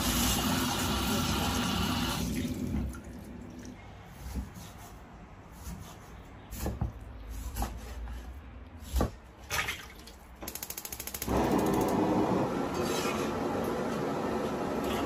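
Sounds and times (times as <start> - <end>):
gas burner roaring: 11.1 - 15.0.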